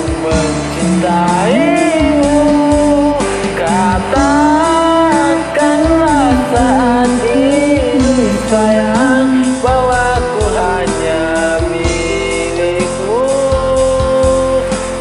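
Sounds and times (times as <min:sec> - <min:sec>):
karaoke backing track: 0:00.0 - 0:15.0
man singing: 0:00.0 - 0:15.0.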